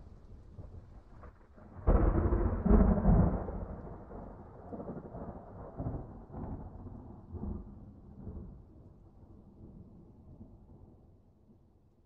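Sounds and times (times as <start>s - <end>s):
thunder rumbling: 0.6s - 8.8s.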